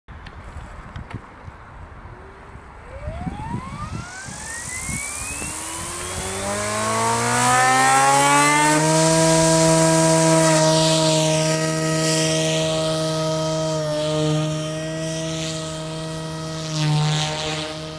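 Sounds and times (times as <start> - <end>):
rc helicopter motor whine: 2.1 - 17.9
rotor blade noise: 2.3 - 17.9
motor vibration: 2.7 - 17.9.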